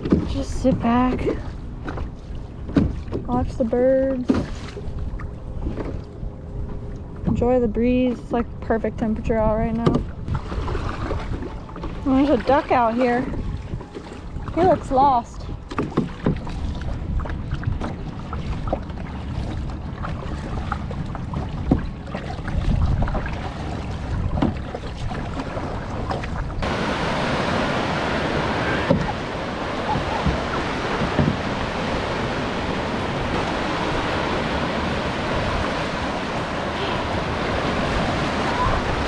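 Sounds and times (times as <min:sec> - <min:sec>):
kayak paddle splashing: 0:04.0 - 0:06.1, 0:09.8 - 0:39.0
wind buffeting microphone: 0:04.6 - 0:39.0
waves breaking in surf: 0:10.2 - 0:39.0.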